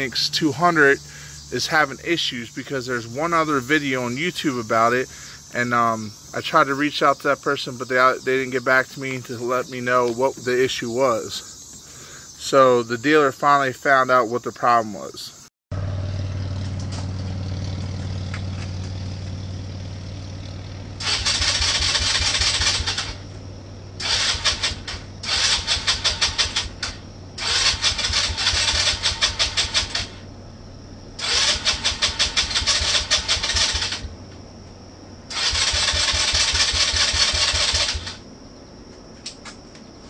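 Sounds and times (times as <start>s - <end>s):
electric starter cranking engine: 21.0s - 23.2s, 24.0s - 30.3s, 31.2s - 34.1s, 35.3s - 38.2s.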